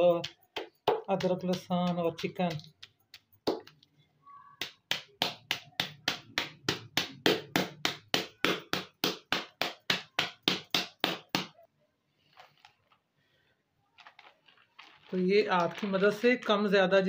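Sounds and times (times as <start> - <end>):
rolling pin beating bagged meat: 4.6 - 11.6.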